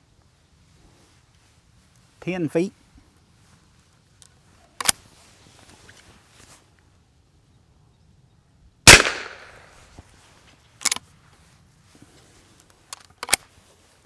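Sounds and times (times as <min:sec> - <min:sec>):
rifle action clicks: 0:04.8 - 0:05.0, 0:08.9 - 0:09.7, 0:10.8 - 0:11.0, 0:12.9 - 0:13.4
rifle shot: 0:08.9 - 0:09.8.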